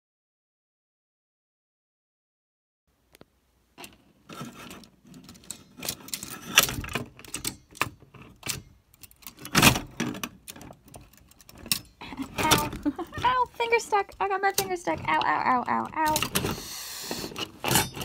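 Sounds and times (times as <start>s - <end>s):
typewriter mechanism clicking and rattling: 14.0s - 16.6s.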